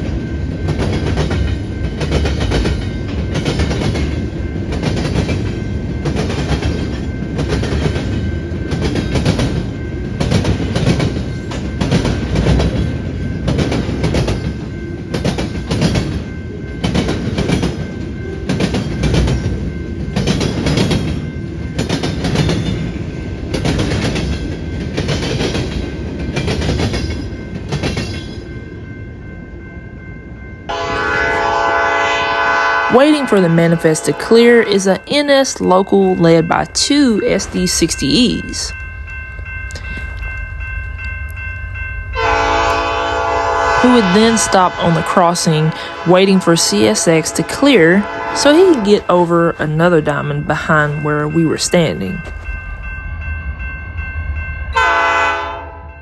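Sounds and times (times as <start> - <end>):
train wheels clacking over rails: 0.0 - 28.5
rumble of rolling train cars: 0.0 - 56.0.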